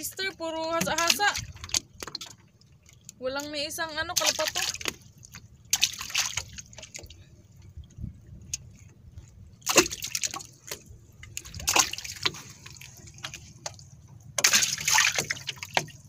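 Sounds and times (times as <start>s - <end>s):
fish splashing in water: 4.2s - 7.2s, 9.6s - 16.0s.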